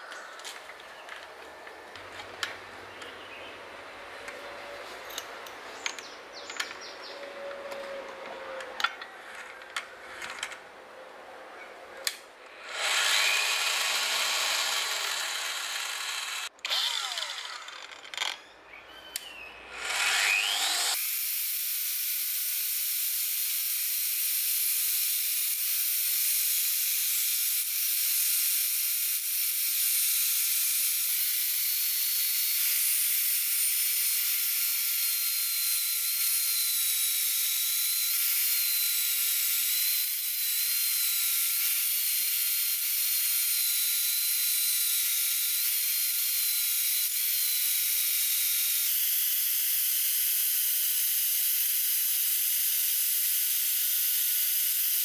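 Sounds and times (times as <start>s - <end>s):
angle grinder grinding steel: 12.0s - 18.5s, 19.2s - 21.0s, 22.4s - 49.3s.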